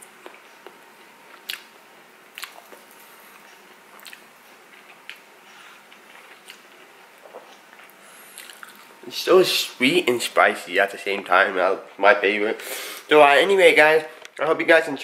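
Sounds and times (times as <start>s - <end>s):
person chewing: 0.0s - 9.0s
wet mouth clicks and smacks: 1.4s - 1.7s, 2.4s - 2.8s, 4.0s - 4.3s.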